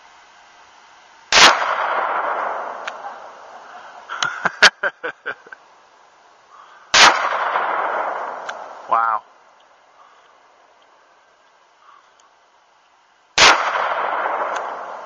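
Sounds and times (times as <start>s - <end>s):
gunshots with echo: 7.0s - 8.6s, 13.4s - 15.0s
sharp clicks: 8.4s - 8.7s.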